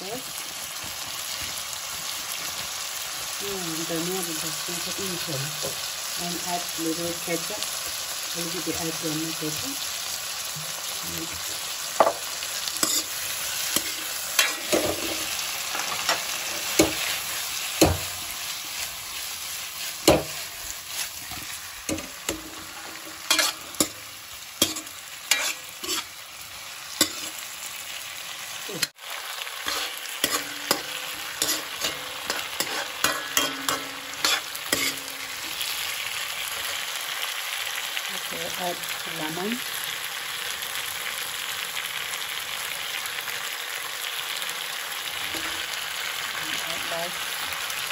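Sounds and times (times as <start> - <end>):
potatoes sizzling in a wok: 0.0 - 47.9
metal spoon scraping a pan: 12.0 - 26.2, 27.0 - 27.4, 29.5 - 36.9, 45.2 - 45.8.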